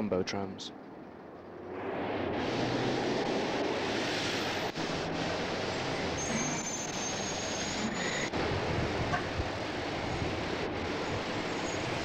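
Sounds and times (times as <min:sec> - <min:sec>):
thin high-pitched squeal: 0:06.2 - 0:08.3.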